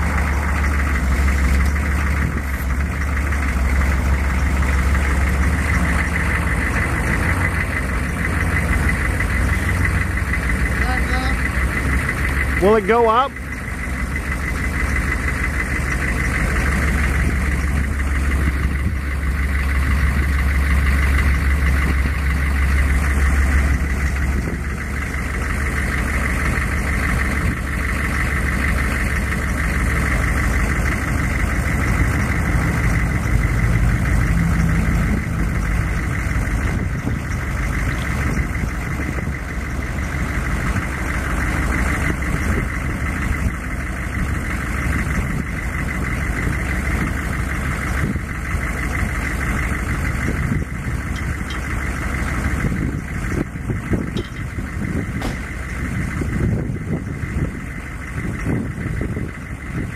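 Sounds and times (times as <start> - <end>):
diesel truck engine running: 0.0 - 59.9.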